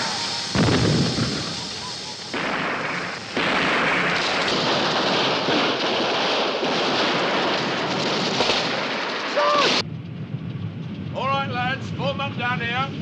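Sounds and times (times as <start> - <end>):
gunfire and explosions: 0.0 - 12.2
person shouting: 9.3 - 9.8.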